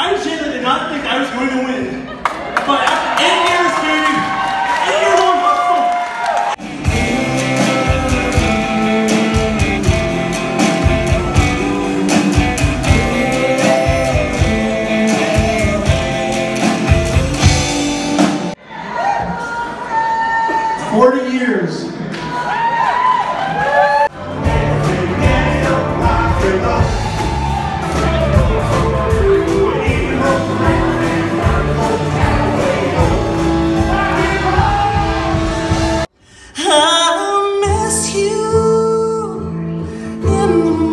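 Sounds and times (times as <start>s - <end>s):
drums: 3.1s - 21.0s, 22.1s - 38.6s
rockabilly band playing: 6.4s - 18.6s, 24.0s - 36.1s
people singing: 6.6s - 17.7s, 24.1s - 36.1s
electric guitar: 6.6s - 18.5s
woman singing: 10.8s - 16.4s, 36.6s - 40.9s
man talking: 20.8s - 22.0s.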